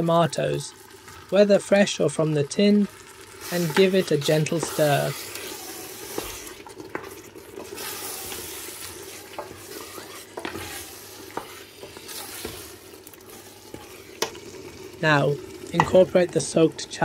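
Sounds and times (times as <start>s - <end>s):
food sizzling in a pot: 0.0s - 17.0s
utensil scraping and knocking pot: 3.4s - 14.6s, 15.7s - 16.3s.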